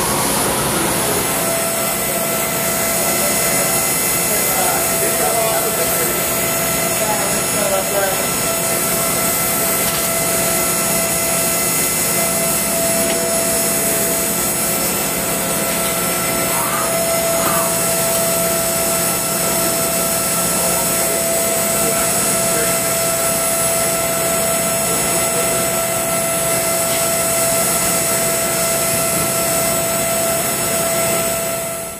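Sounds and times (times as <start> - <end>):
milling machine spindle whining: 0.0 - 31.9.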